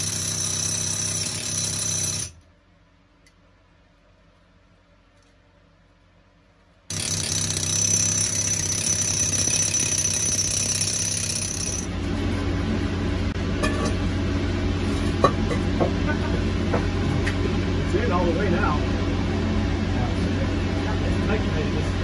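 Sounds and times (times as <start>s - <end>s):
hammer drill into rock: 6.9s - 11.9s
low mechanical din: 6.9s - 14.4s.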